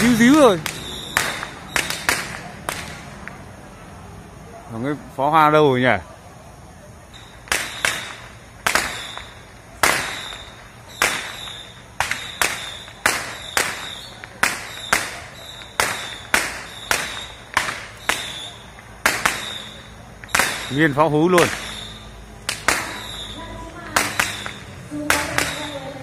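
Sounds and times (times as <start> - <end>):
fireworks banging: 0.0 - 3.6, 7.1 - 26.0.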